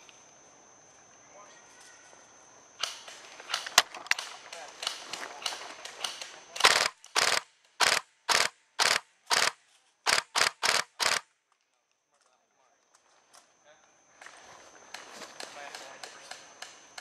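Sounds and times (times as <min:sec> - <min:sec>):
airsoft gun pops and clicks: 0:02.8 - 0:11.2
automatic airsoft fire bursts: 0:06.0 - 0:11.2.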